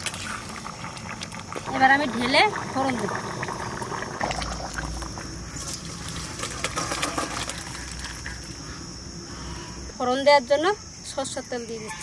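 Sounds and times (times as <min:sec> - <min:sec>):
thick liquid sloshing and splattering: 0:00.0 - 0:08.6.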